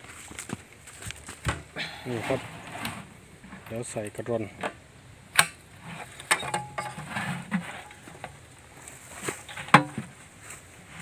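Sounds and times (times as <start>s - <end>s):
metal latch and lid clicking: 6.2s - 7.0s.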